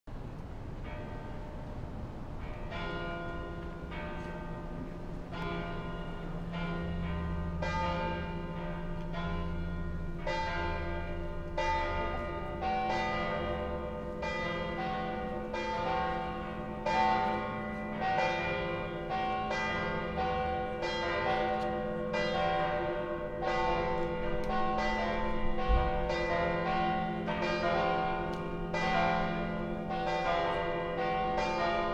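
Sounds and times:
church bells pealing: 0:00.8 - 0:31.9.

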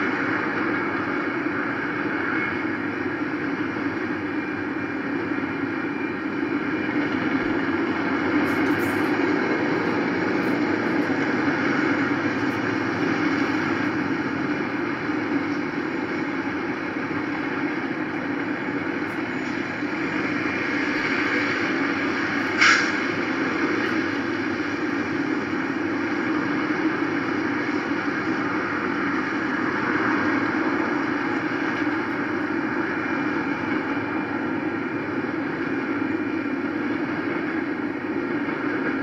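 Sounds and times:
freight train rolling past: 0:00.0 - 0:39.0.

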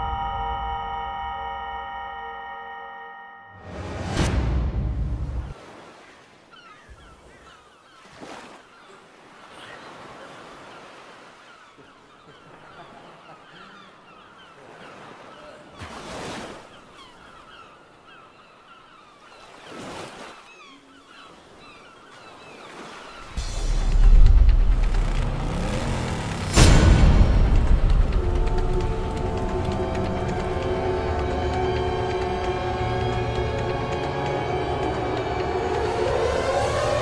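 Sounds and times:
bird calls: 0:06.5 - 0:24.1.

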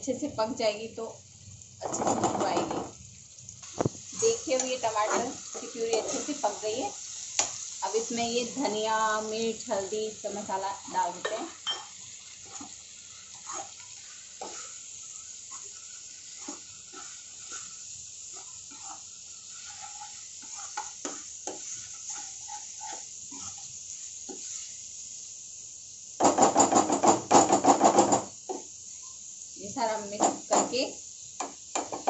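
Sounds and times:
spices sizzling in a pan: 0:00.0 - 0:32.0
steel spoon scraping a pan: 0:03.7 - 0:24.8.

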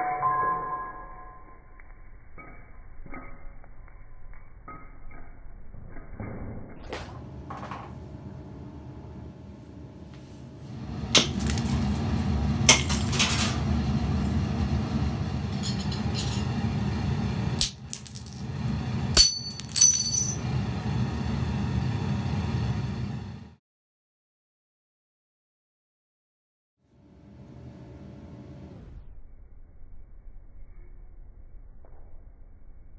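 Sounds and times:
glass clinking on concrete: 0:00.0 - 0:01.2, 0:17.6 - 0:18.4, 0:19.2 - 0:20.4.

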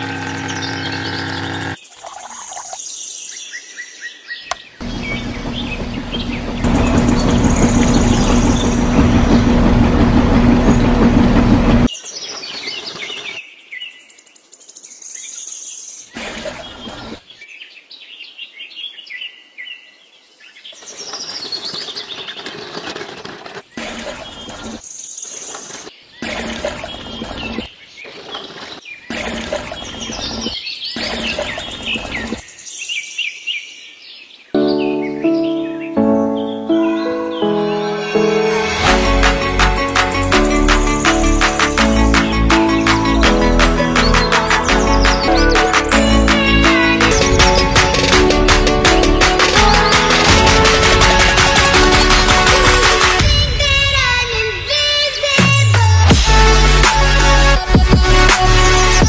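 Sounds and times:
songbirds chirping: 0:00.0 - 0:09.5, 0:11.9 - 0:37.8
loud steady hum with rushing: 0:04.8 - 0:11.9.

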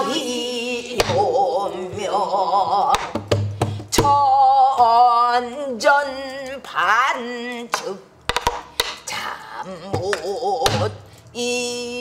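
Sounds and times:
person singing ornamented vocals: 0:00.0 - 0:03.1, 0:09.1 - 0:12.0.

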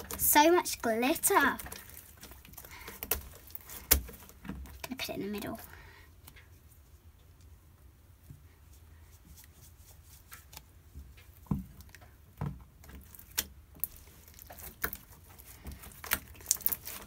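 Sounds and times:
slime clicks and squelches: 0:13.0 - 0:17.0.

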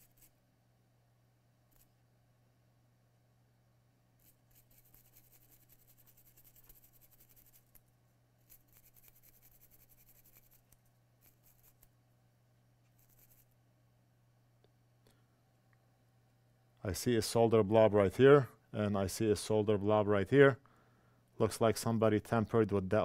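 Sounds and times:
brush scrubbing circuit board: 0:00.0 - 0:00.4, 0:04.2 - 0:07.8, 0:08.4 - 0:11.9, 0:12.9 - 0:13.5
low steady hum: 0:00.0 - 0:23.0.

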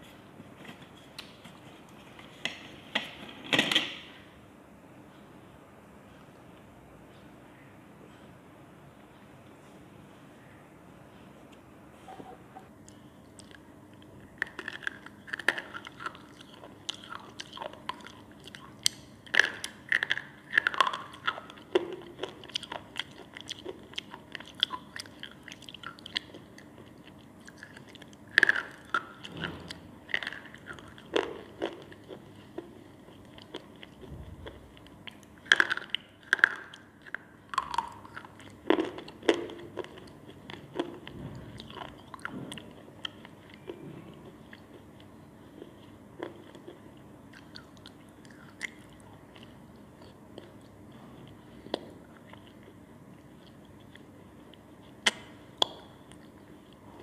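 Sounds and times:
quiet chewing: 0:11.5 - 0:57.0.

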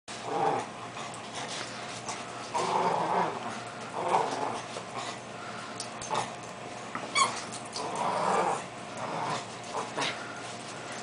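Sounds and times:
small dog growling: 0:00.1 - 0:01.6, 0:02.3 - 0:05.2, 0:06.0 - 0:06.4, 0:07.1 - 0:10.5.

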